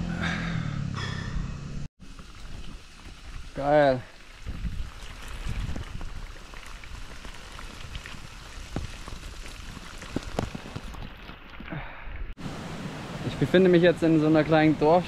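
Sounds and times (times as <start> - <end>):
raindrops ticking: 2.0 - 11.4
rain falling: 2.0 - 15.0.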